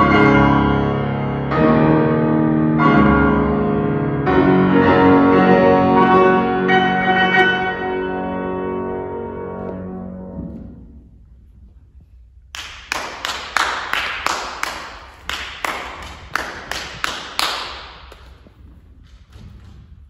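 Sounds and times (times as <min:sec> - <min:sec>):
grand piano chord: 0:00.0 - 0:11.1.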